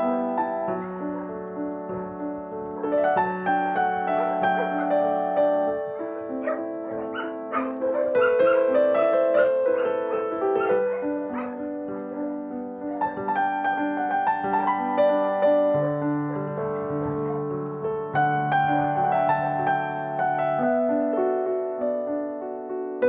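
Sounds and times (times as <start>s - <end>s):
soft piano music: 0.0s - 23.0s
puppies yapping and barking: 0.1s - 14.4s, 16.7s - 17.5s.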